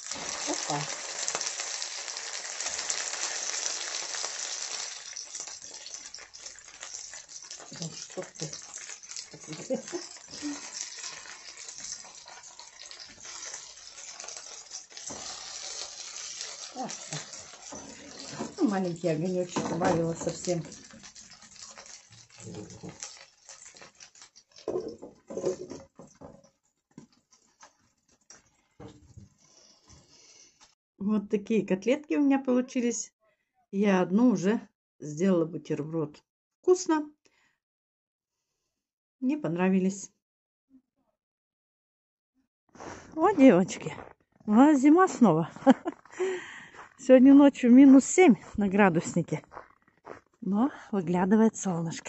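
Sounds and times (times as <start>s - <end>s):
patties sizzling in oil: 0.0s - 25.7s.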